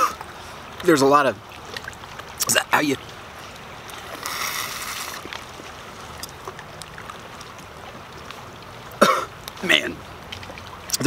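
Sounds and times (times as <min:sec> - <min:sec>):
river rushing: 0:00.0 - 0:11.0
small wet clicks: 0:01.5 - 0:11.0
person slurping: 0:04.2 - 0:05.3.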